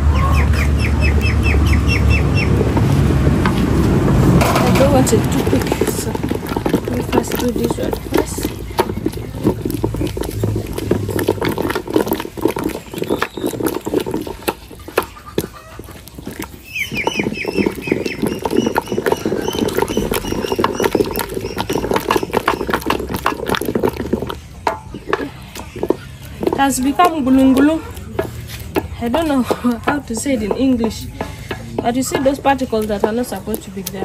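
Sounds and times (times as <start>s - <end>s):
bird calling short rising notes: 0.0s - 2.6s
pot knocking and scraping: 2.0s - 34.0s.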